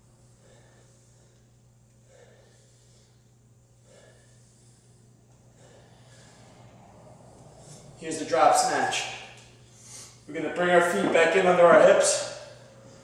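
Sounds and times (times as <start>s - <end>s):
steady low hum: 0.0s - 13.0s
man breathing under exertion: 0.1s - 8.0s.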